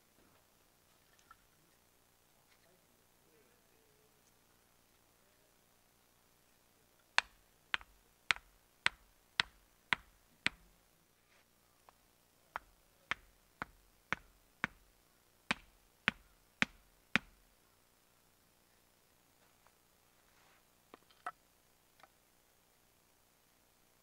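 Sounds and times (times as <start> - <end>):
hatchet knocking wooden stakes: 7.2 - 10.6, 12.6 - 14.8, 15.5 - 17.4.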